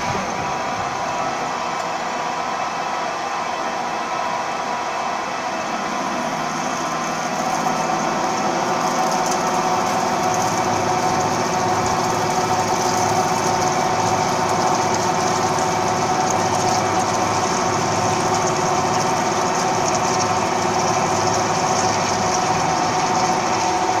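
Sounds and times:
drilling machine whine: 0:00.0 - 0:24.0.

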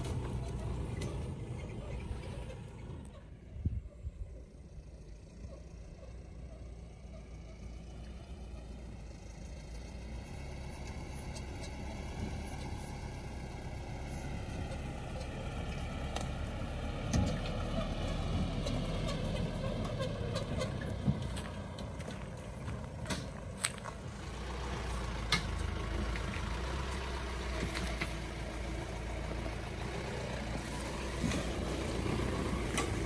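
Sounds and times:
truck knocking and clattering: 0:00.0 - 0:03.2, 0:14.5 - 0:30.2, 0:30.8 - 0:33.0
truck engine running: 0:00.0 - 0:33.0.

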